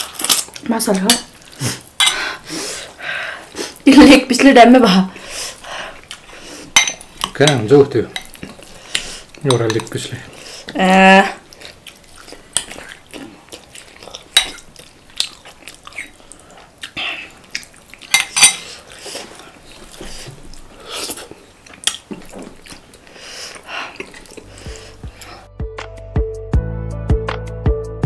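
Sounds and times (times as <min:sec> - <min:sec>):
utensils clinking on plate: 0:02.0 - 0:02.2, 0:06.8 - 0:08.6, 0:18.1 - 0:18.7
chewing and smacking: 0:05.9 - 0:06.4, 0:11.4 - 0:25.3
music: 0:24.6 - 0:28.0.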